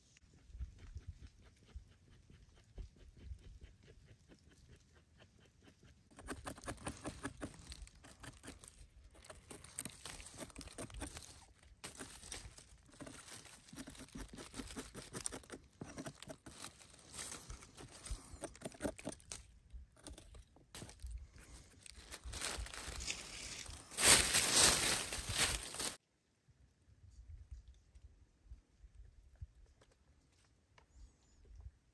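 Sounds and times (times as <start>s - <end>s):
knife scraping soil off mushroom: 6.1s - 26.0s
dry leaves crinkling: 6.2s - 19.4s, 20.8s - 26.0s.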